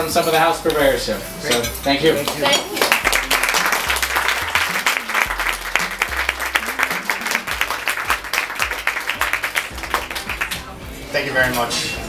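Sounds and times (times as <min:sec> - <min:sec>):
soft background music: 0:00.0 - 0:12.0
crowd applauding: 0:02.2 - 0:10.8.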